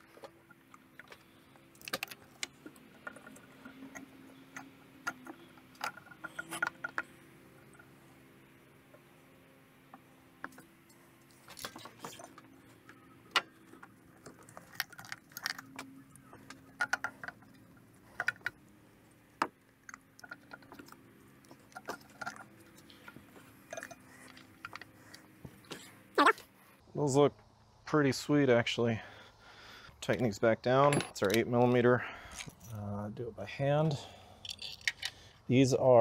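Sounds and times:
small parts clicking and rattling: 0:00.0 - 0:08.2, 0:09.9 - 0:26.3, 0:32.2 - 0:32.8, 0:34.2 - 0:35.5.

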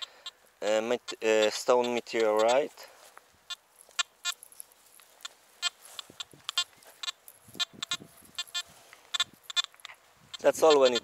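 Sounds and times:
metal detector short beeps: 0:01.0 - 0:02.7, 0:05.2 - 0:11.0.

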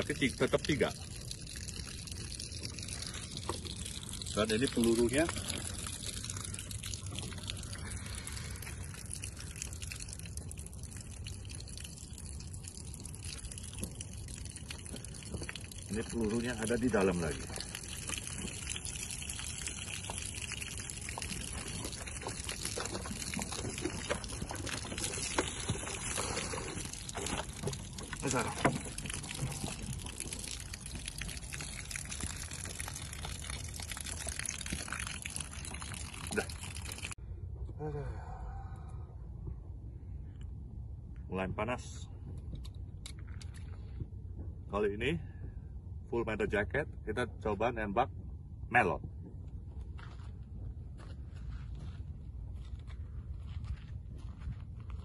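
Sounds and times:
water trickling and gushing: 0:00.0 - 0:37.2.

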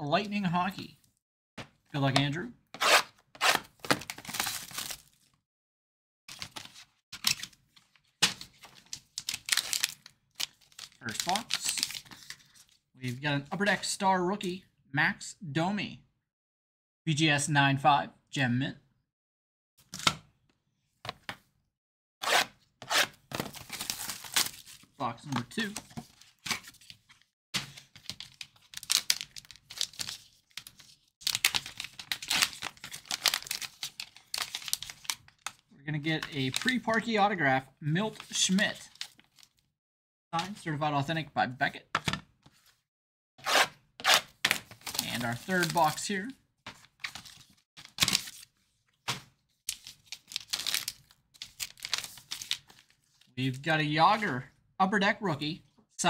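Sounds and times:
packaging rustling and crinkling: 0:23.3 - 0:25.0, 0:27.8 - 0:35.6, 0:44.5 - 0:46.1, 0:46.7 - 0:48.5, 0:49.6 - 0:53.3.

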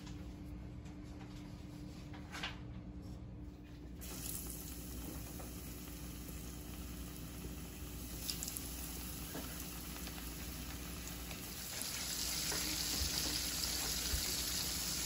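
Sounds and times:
steady low hum: 0:00.0 - 0:15.0
fish frying in hot oil: 0:04.0 - 0:15.0.

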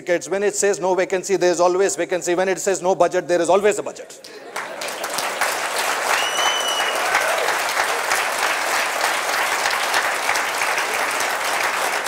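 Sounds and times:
audience applauding: 0:04.3 - 0:12.0
high whistle: 0:06.1 - 0:07.2.

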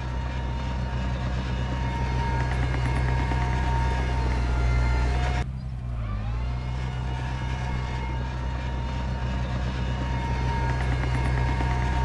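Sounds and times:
bulldozer diesel engine running: 0:00.0 - 0:12.0.

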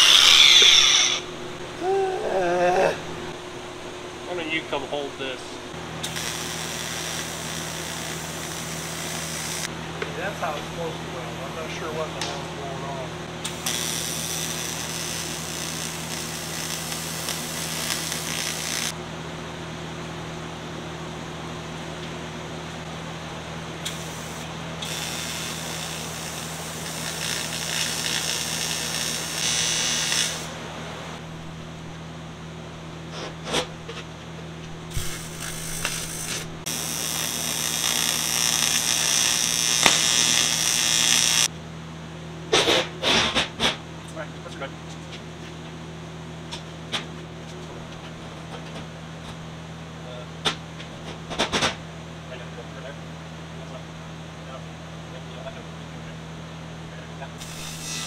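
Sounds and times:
hissing welding arc: 0:00.0 - 0:01.3, 0:06.0 - 0:09.7, 0:13.4 - 0:19.0, 0:23.8 - 0:30.6, 0:34.9 - 0:41.5, 0:57.4 - 0:58.0
low hum: 0:00.0 - 0:06.1
welding arc striking click: 0:13.4 - 0:18.9, 0:23.8 - 0:30.5, 0:34.9 - 0:41.5, 0:57.4 - 0:58.0
sharp crackle: 0:13.5 - 0:18.9, 0:23.9 - 0:30.5, 0:34.9 - 0:41.5.

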